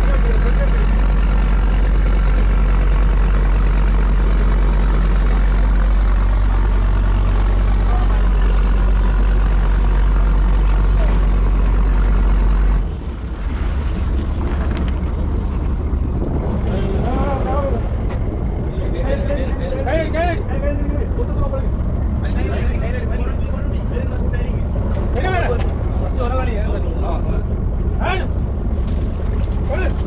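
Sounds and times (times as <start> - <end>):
boat engine droning: 0.0 - 30.0
quieter engine hum: 0.0 - 30.0.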